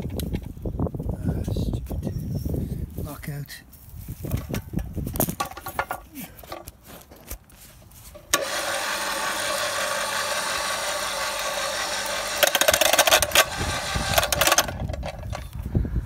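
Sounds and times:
knocking and rattling: 4.3s - 7.2s
electric winch motor running: 8.3s - 15.4s.

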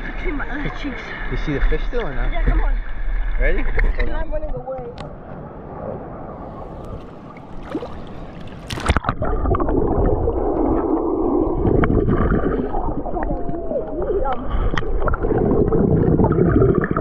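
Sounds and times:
seawater sloshing and gurgling: 6.5s - 17.0s
sharp water splash: 7.0s - 12.8s.

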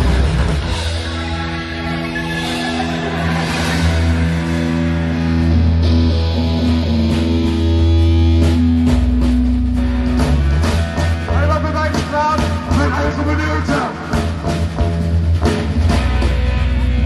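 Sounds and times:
rock band playing: 0.0s - 17.0s
drum and cymbal hits: 2.5s - 17.0s.

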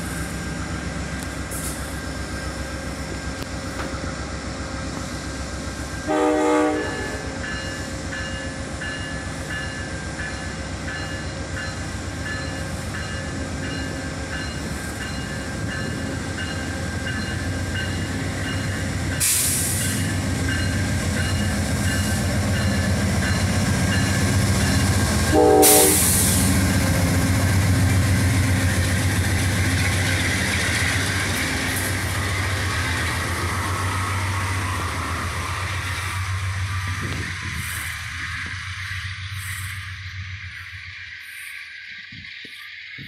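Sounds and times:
diesel locomotive engine drone: 0.0s - 43.0s
train rumbling past: 0.0s - 43.0s
train horn blast: 6.0s - 7.4s, 25.3s - 26.4s
brief hiss: 19.2s - 20.0s.

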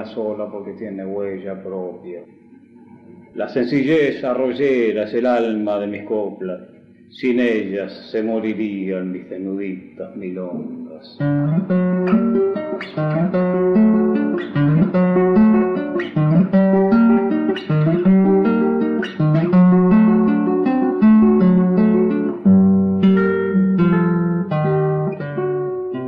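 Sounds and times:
acoustic guitar playing: 10.4s - 26.0s.

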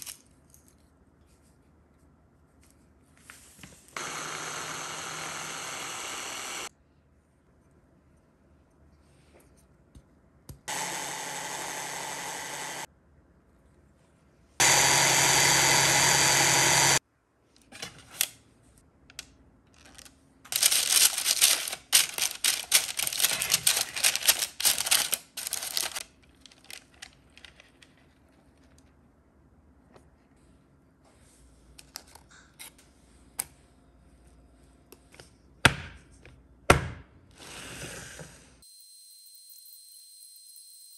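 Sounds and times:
electric chopper motor: 4.0s - 6.7s, 10.7s - 12.9s, 14.6s - 17.0s
parchment paper crinkling: 19.7s - 28.9s.

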